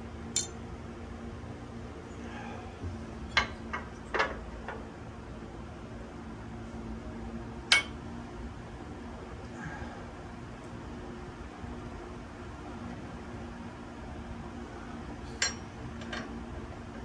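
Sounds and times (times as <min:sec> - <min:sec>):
steady low hum: 0:00.0 - 0:17.0
metallic clinks of tools and parts: 0:00.4 - 0:00.6.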